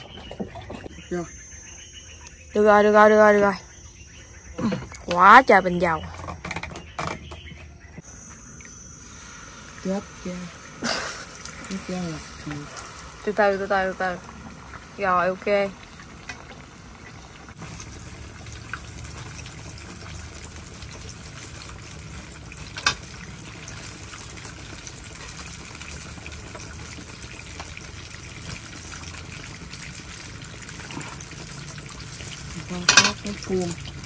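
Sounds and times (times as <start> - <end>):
banana frying in hot oil: 8.0 - 34.0.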